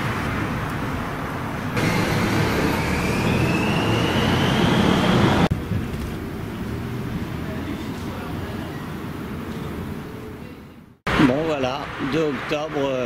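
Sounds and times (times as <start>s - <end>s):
motor vehicle whining: 0.0s - 10.3s
street traffic: 0.0s - 13.0s.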